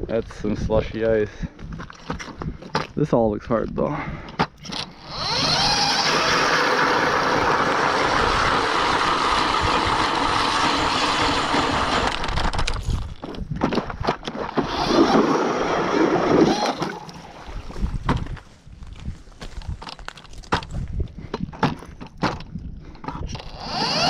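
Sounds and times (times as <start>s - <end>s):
electric ice auger boring: 4.8s - 12.6s, 14.5s - 17.1s, 23.4s - 24.0s.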